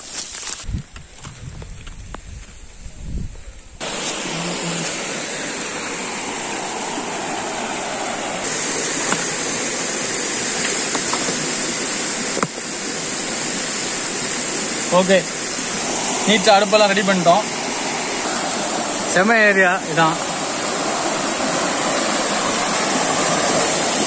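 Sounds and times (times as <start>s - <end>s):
flowing water rushing: 3.8s - 24.0s
stones knocking: 9.0s - 9.4s, 12.3s - 12.7s.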